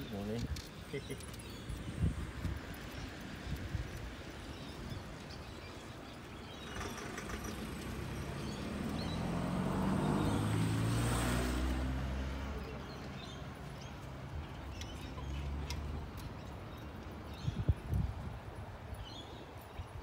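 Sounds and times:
vehicle engine passing: 6.6 - 13.4.

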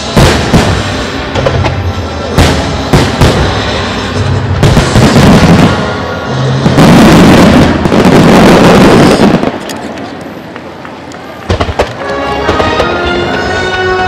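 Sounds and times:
music playing: 12.0 - 14.0.

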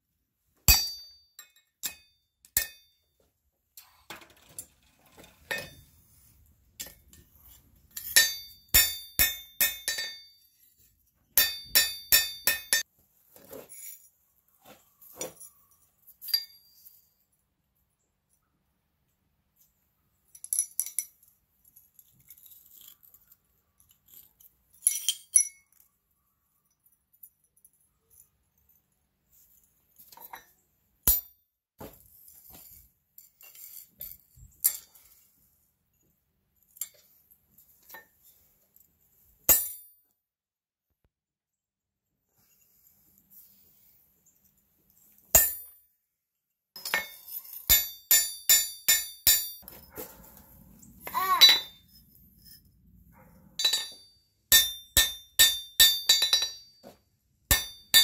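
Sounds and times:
iron plates clinking: 0.7 - 2.9, 7.9 - 10.4, 11.4 - 12.8, 53.6 - 58.0.

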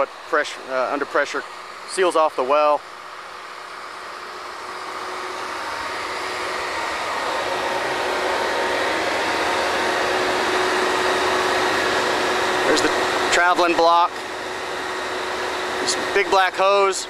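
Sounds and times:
drilling rig machinery running: 0.0 - 17.0.

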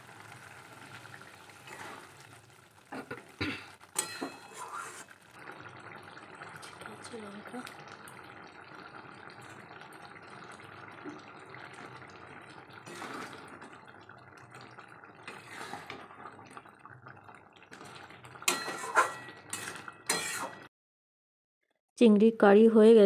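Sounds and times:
curry bubbling in a pan: 0.0 - 20.7
spatula scraping metal pan: 4.0 - 5.1, 12.9 - 13.4, 15.3 - 16.0, 18.5 - 20.7.

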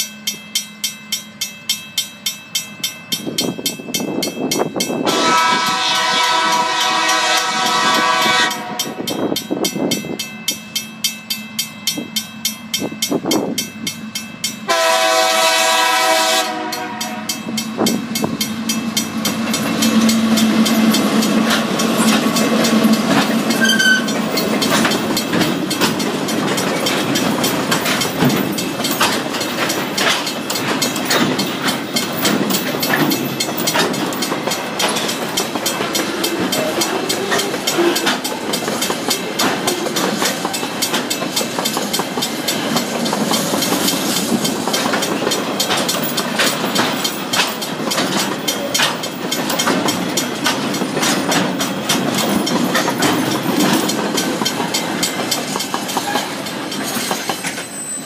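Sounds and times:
train wheels rumbling on rails: 0.0 - 58.0
wheels clacking over track: 15.4 - 57.9.

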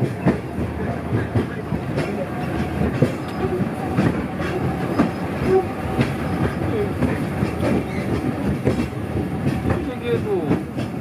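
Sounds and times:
funicular car rumbling on track: 0.0 - 11.0
wheels clacking and knocking: 0.0 - 11.0.

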